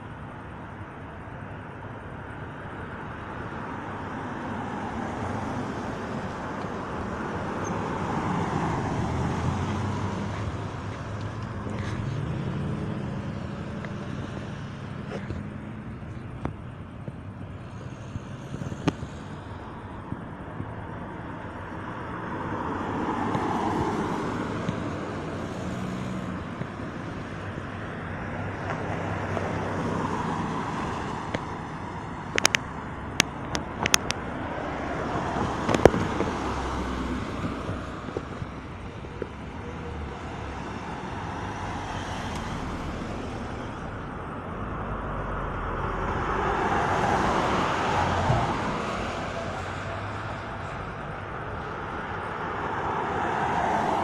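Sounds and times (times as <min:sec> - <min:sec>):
cars passing: 0:00.0 - 0:54.0
sharp clicks: 0:32.3 - 0:34.2.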